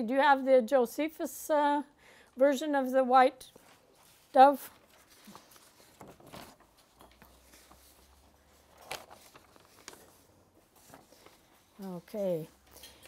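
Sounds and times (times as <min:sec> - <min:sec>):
paper rustling: 0:03.5 - 0:13.0.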